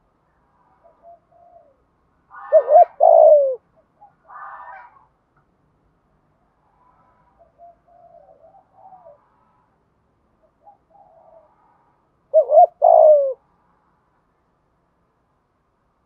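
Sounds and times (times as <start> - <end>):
dove cooing: 0.8 - 1.8, 2.4 - 4.9, 7.4 - 9.2, 10.6 - 11.5, 12.3 - 13.4.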